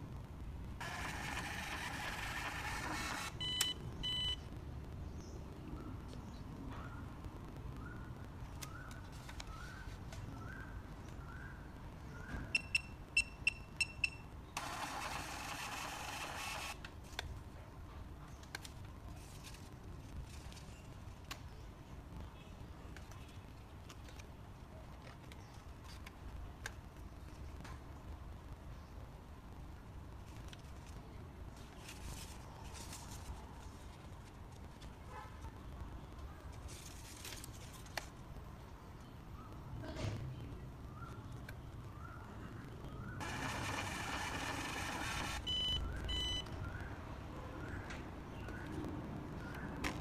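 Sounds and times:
receipt printer printing: 0.8s - 3.7s, 14.6s - 16.8s, 43.2s - 45.8s
payment terminal beeping: 0.8s - 4.4s, 12.5s - 16.8s, 43.2s - 46.5s.

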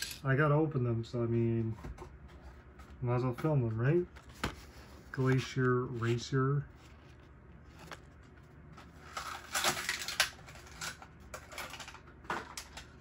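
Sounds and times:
plastic packaging crackling: 9.0s - 13.0s.

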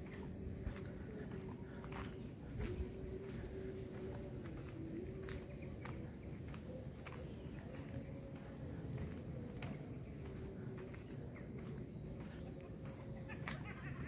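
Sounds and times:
crickets chirping: 0.0s - 14.0s.

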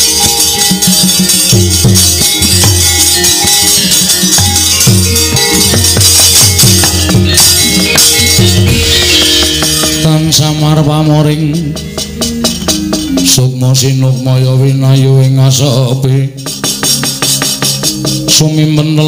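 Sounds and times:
bright jingling: 0.0s - 10.8s
drumming: 0.0s - 19.0s
metallophones ringing: 0.0s - 19.0s
person singing: 7.1s - 12.2s, 13.1s - 16.5s, 18.2s - 19.0s.

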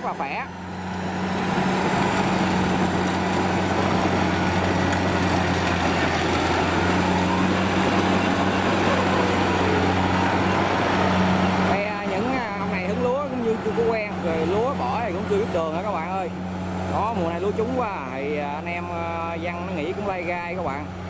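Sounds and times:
diesel engine drone: 0.0s - 21.0s
cutting gear whirring: 0.7s - 15.7s.

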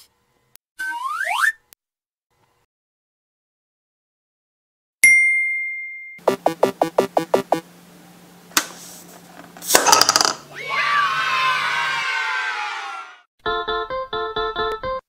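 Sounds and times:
bright ding: 5.0s - 6.2s
short pitched notes: 6.2s - 7.7s.

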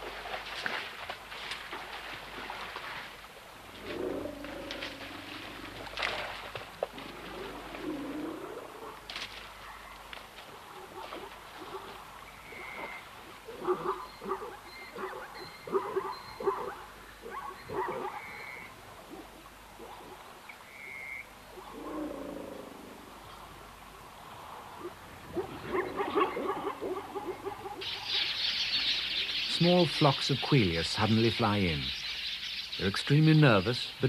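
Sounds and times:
animal calls: 10.7s - 22.8s, 24.8s - 29.6s
flock of small birds chattering: 27.8s - 34.0s.

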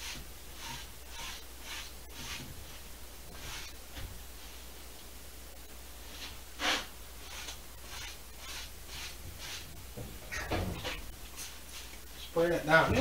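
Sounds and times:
paintbrush scrubbing canvas: 0.0s - 3.8s, 6.2s - 9.7s.

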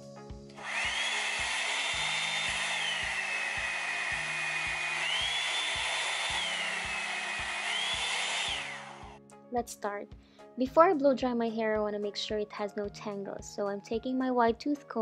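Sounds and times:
hair dryer brush motor whine: 0.5s - 9.2s.

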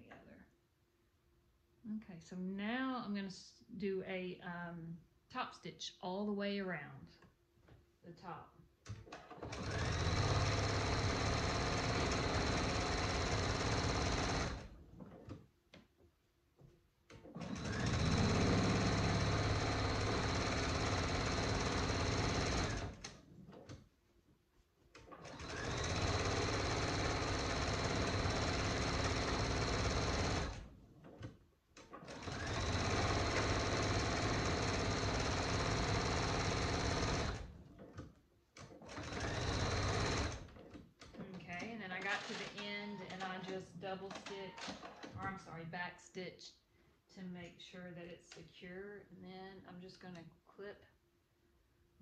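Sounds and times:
sewing machine stitching: 8.8s - 15.4s, 17.1s - 23.9s, 24.9s - 45.6s.

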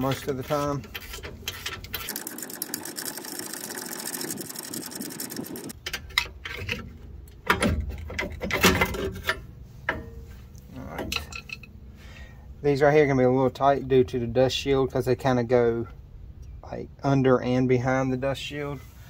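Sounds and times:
metal parts clanking: 10.9s - 11.7s.

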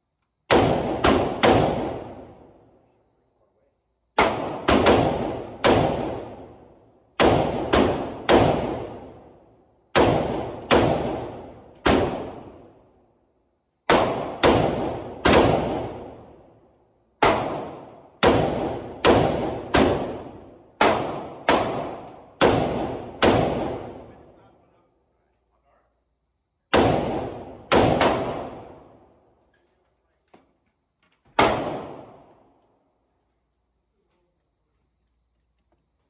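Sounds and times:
rifle shots with echo: 0.5s - 2.6s, 4.2s - 9.3s, 9.9s - 12.8s, 13.9s - 16.4s, 17.2s - 24.4s, 26.7s - 29.0s, 31.4s - 32.4s.

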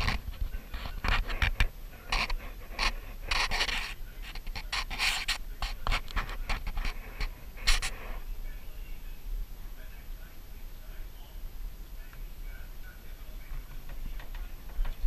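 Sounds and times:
heavy breathing: 0.0s - 3.9s, 6.7s - 8.3s.

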